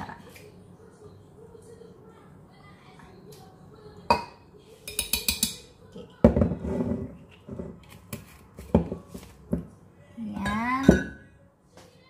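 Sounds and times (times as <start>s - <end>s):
metal spoon clinking on glass: 4.9s - 5.6s.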